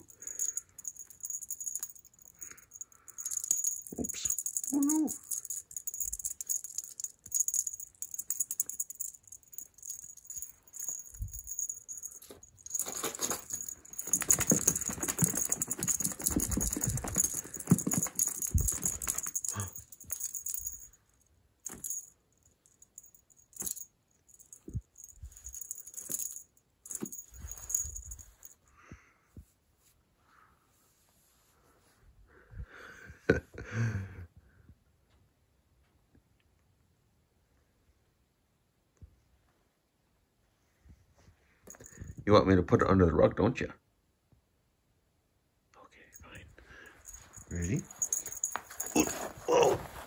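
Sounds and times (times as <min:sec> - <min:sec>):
cat toy rattling and jingling: 0:00.0 - 0:21.0, 0:21.6 - 0:28.6, 0:46.2 - 0:50.0
scuffling and rustling: 0:10.8 - 0:20.8, 0:47.0 - 0:50.0.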